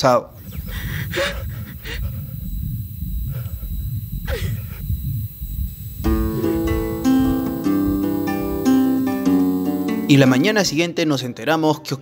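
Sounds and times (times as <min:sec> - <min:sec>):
slow plucked-string music: 0:06.0 - 0:10.2.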